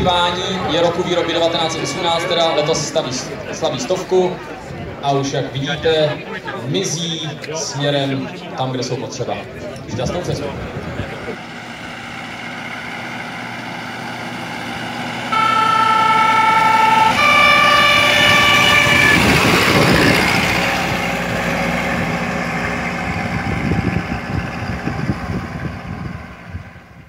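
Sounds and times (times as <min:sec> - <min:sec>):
fire engine horn: 0:00.0 - 0:04.0, 0:15.3 - 0:22.2
fire engine passing: 0:00.0 - 0:07.0, 0:09.4 - 0:27.0.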